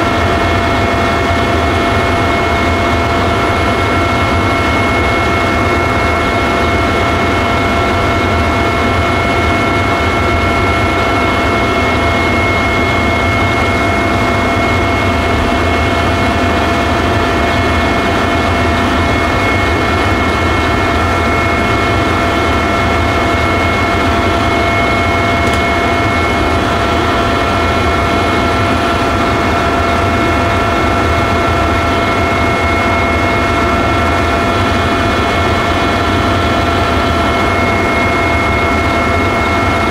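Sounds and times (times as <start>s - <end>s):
helicopter engine and rotor roar: 0.0s - 39.9s
high whining tones: 9.2s - 34.7s.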